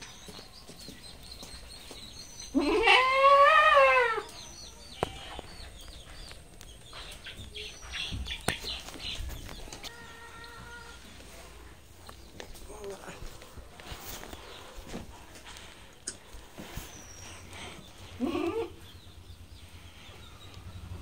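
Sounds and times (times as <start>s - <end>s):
goat bleating: 2.5s - 4.3s, 18.2s - 18.8s.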